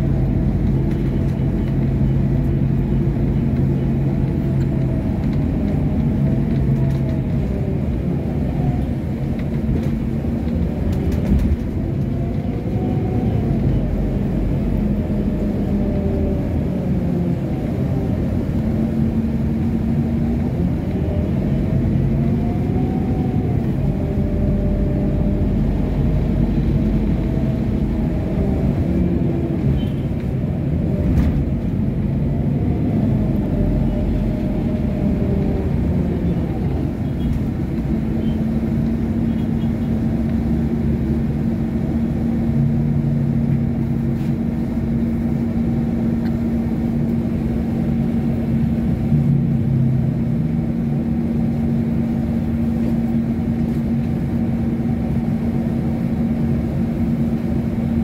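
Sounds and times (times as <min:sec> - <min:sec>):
bus engine and road drone: 0:00.0 - 0:58.0
bus whine rising and falling: 0:00.0 - 0:58.0.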